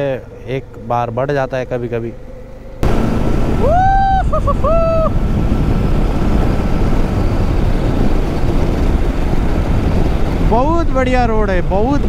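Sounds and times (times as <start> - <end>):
motorcycle engine cruising: 0.0 - 12.0
wind noise on microphone: 2.8 - 12.0.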